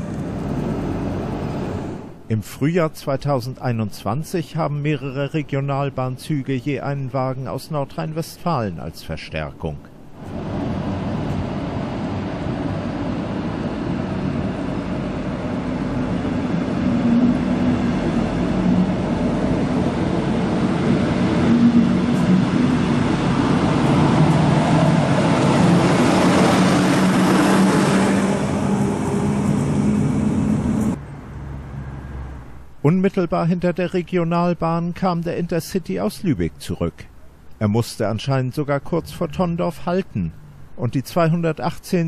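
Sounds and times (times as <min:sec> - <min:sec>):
train low hum: 0:00.0 - 0:36.6
train wheels rumbling on rail: 0:10.2 - 0:31.0.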